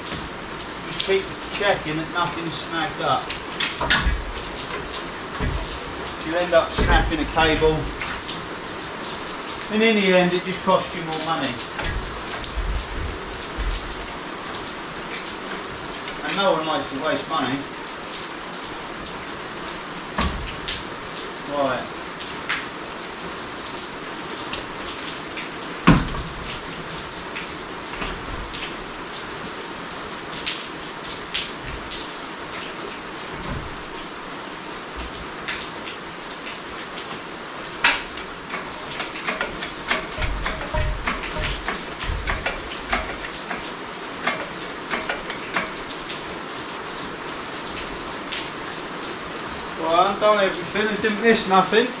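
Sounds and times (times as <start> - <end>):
steady hiss: 0.0 - 52.0
loud metal clunk: 20.2 - 20.8, 25.8 - 26.6
metallic clicks and knocks: 37.8 - 45.8.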